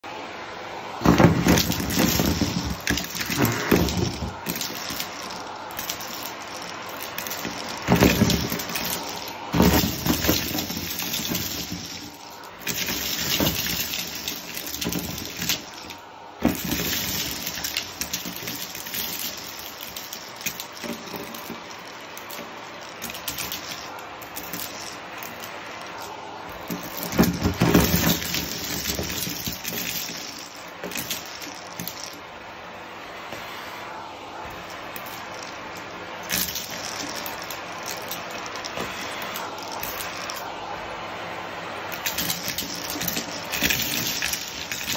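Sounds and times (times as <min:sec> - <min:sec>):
vacuum cleaner running: 0:00.0 - 0:19.4, 0:32.4 - 0:36.7, 0:38.2 - 0:44.9
debris rattling up vacuum tube: 0:01.0 - 0:32.3, 0:34.5 - 0:40.6, 0:41.9 - 0:44.9.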